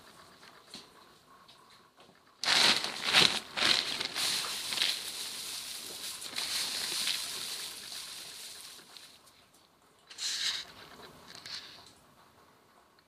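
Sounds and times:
plastic bag crinkling: 0:02.4 - 0:09.3.

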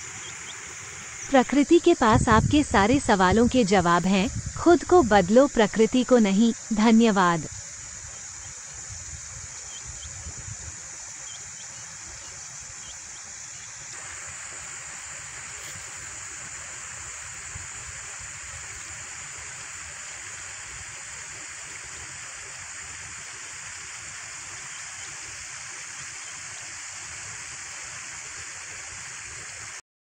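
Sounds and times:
thin high whine: 0:00.0 - 0:18.9
stream rushing hiss: 0:00.0 - 0:29.8.

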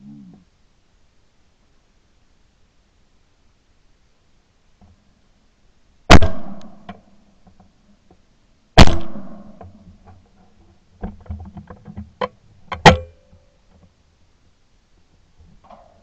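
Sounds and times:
sharp loud crack: 0:06.1 - 0:06.9, 0:08.8 - 0:09.6
shotgun shot: 0:06.1 - 0:06.9, 0:08.8 - 0:09.6
small clicks and knocks: 0:09.6 - 0:14.0.

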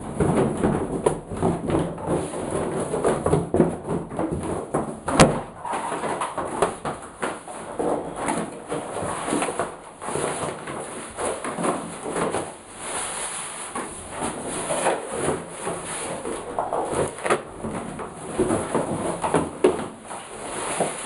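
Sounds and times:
thumps on tiled floor: 0:00.0 - 0:12.6
cardboard box rustling and scraping: 0:00.1 - 0:21.0.

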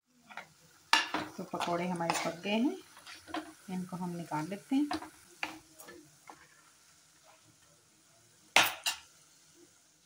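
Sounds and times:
faint oil sizzling: 0:00.0 - 0:10.0
spoon scraping in pan of oil: 0:00.2 - 0:07.5.

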